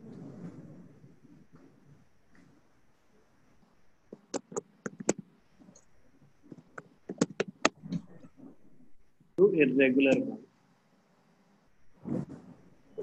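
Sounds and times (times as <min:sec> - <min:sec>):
keyboard typing and mouse clicks: 0:04.1 - 0:05.9, 0:06.5 - 0:08.5.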